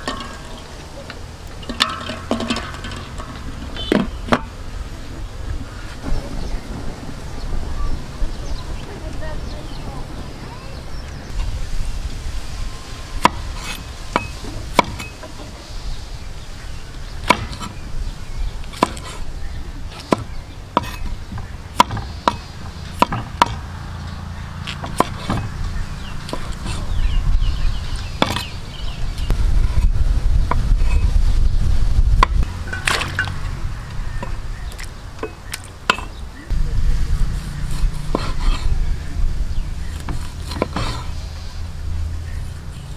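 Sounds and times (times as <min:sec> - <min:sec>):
low rumble: 0:00.0 - 0:14.8, 0:25.4 - 0:35.2, 0:36.2 - 0:42.9
cleaver chopping on wooden board: 0:13.2 - 0:15.1, 0:17.2 - 0:17.7, 0:18.7 - 0:19.2, 0:19.9 - 0:23.6, 0:24.7 - 0:25.5, 0:28.2 - 0:28.5.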